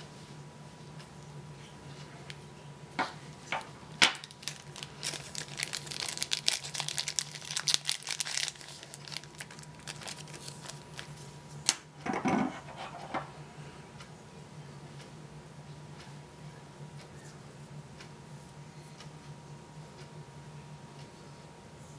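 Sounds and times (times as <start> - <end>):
plastic bag crinkling: 4.0 - 11.2.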